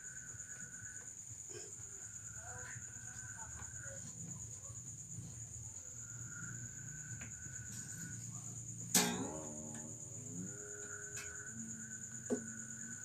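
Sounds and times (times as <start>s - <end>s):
crickets chirring: 0.0s - 13.0s
guitar string rising in pitch: 9.0s - 11.7s.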